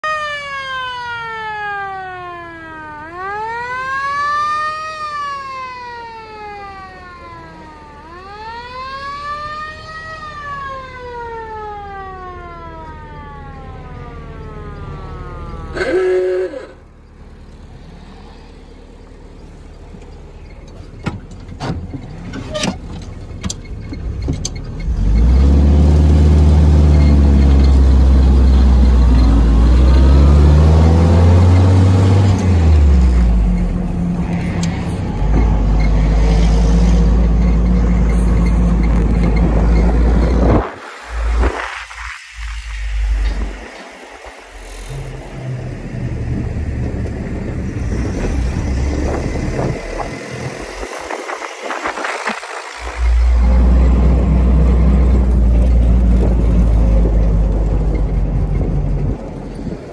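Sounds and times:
siren winding up and down: 0.0 - 16.9, 24.8 - 57.2
jeep engine running: 12.5 - 59.9
horn blast: 15.6 - 16.9.

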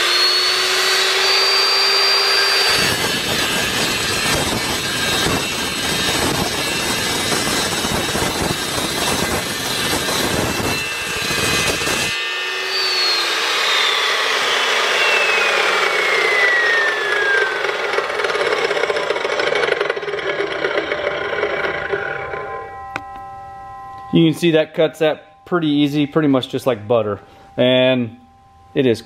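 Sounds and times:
chop saw cutting metal: 0.0 - 23.2
saw blade spinning down whine: 0.0 - 29.0.

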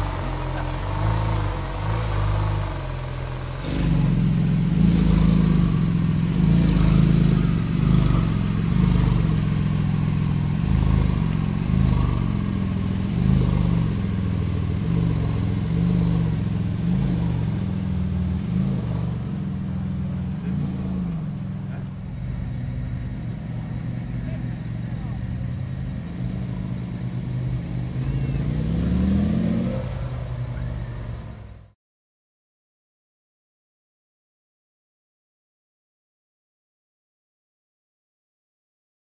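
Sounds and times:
sports car engine idling: 0.0 - 28.4, 30.0 - 31.7.

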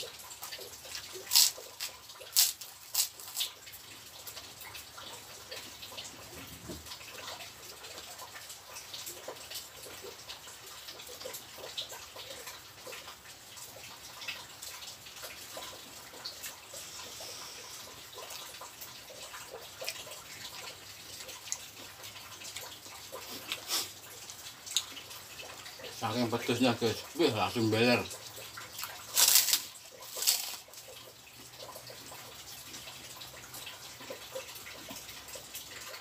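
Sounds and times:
wet chewing and lip-smacking: 0.0 - 6.0, 14.2 - 25.7, 28.3 - 32.1.

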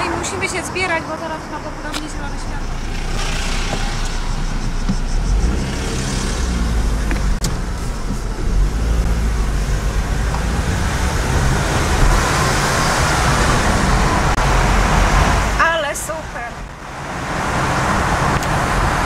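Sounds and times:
car engine rumble: 0.0 - 19.0
road hiss from tyres: 2.7 - 9.6.

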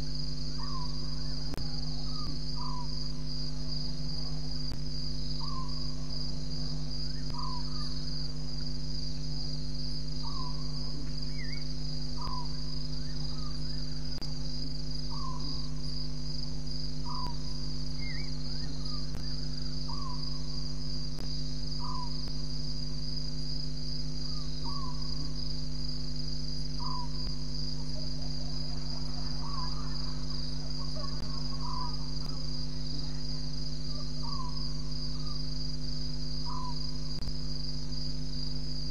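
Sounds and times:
cricket trill: 0.0 - 38.9
low steady hum: 0.0 - 38.9
short falling insect calls: 7.0 - 8.7, 26.2 - 38.6.

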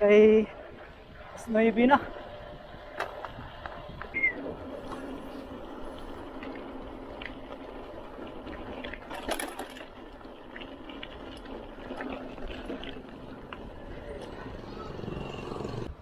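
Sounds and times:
bike tyre and wind rush: 0.0 - 16.0
bike clicks and rattles: 0.3 - 15.9.

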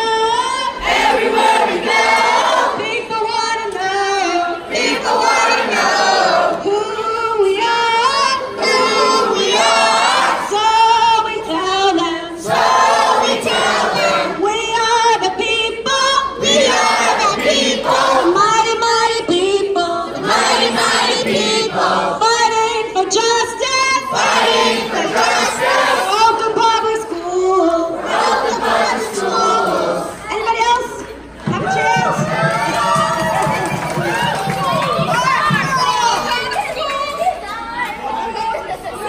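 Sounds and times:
group singing together: 0.0 - 30.4.

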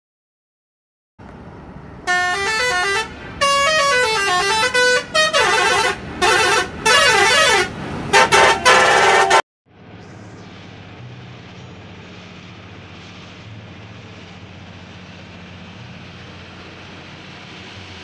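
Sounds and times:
musical vehicle horn tune: 2.1 - 9.4.

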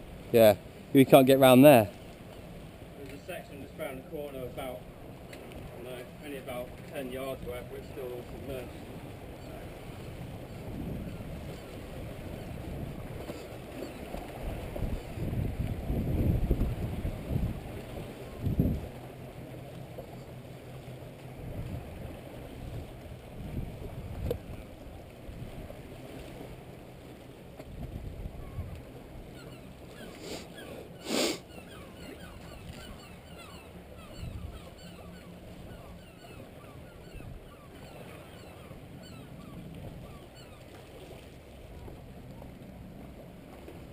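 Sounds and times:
sea lapping gently: 0.0 - 43.9
wind buffeting microphone: 8.4 - 19.1, 21.4 - 25.8, 27.6 - 29.2, 34.1 - 34.6.

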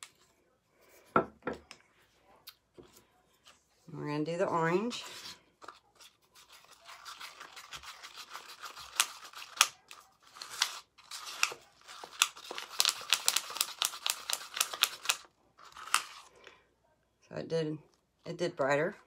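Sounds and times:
stick scraping plastic cup: 4.9 - 14.6.

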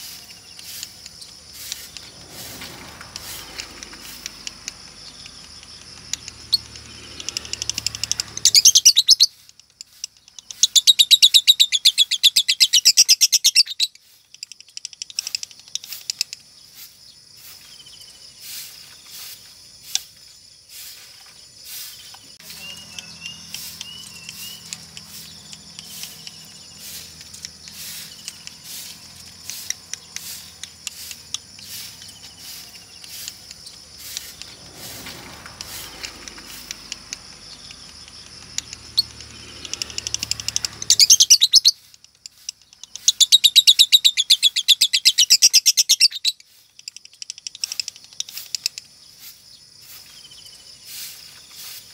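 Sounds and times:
bird chirps and warbles: 0.0 - 19.4, 20.4 - 51.8
lovebird fast high trill: 6.4 - 9.5, 20.7 - 37.8, 38.7 - 41.9.

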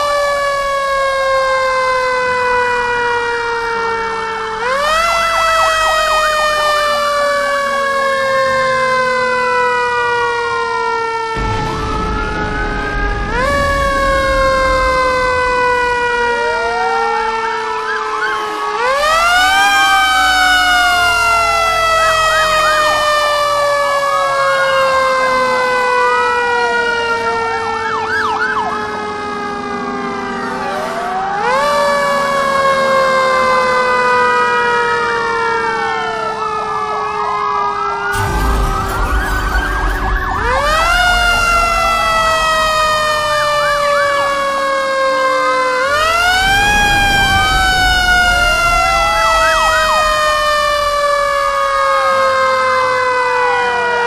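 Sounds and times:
emergency vehicle sirens wailing: 0.0 - 54.0
low rumble: 11.4 - 16.8, 38.2 - 44.4, 46.3 - 51.8.

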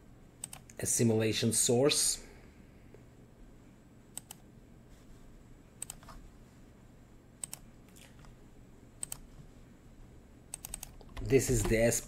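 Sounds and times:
computer mouse clicks: 0.4 - 0.8, 4.1 - 4.4, 5.8 - 6.2, 7.4 - 8.4, 9.0 - 9.3, 10.5 - 11.9.

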